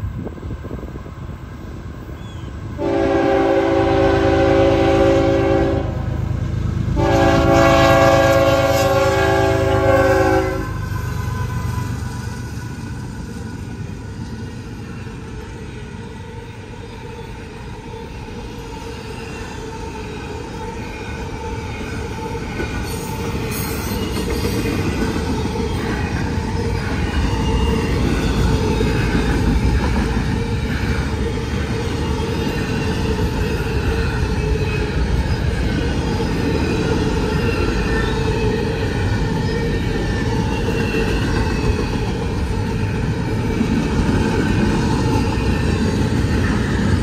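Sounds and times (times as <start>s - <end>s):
train wheels rumbling on rail: 0.0s - 47.0s
locomotive air horn blasts: 2.8s - 6.2s, 7.0s - 10.8s.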